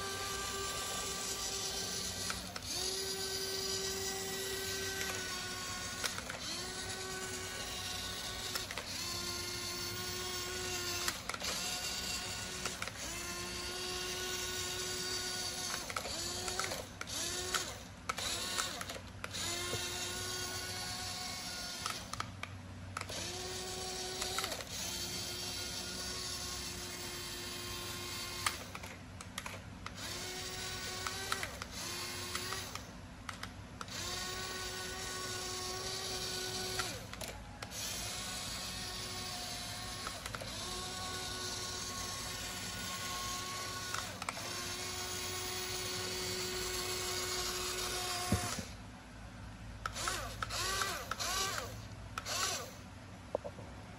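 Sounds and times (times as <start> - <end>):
toy electric motors whining: 0.0 - 48.9, 49.8 - 52.9.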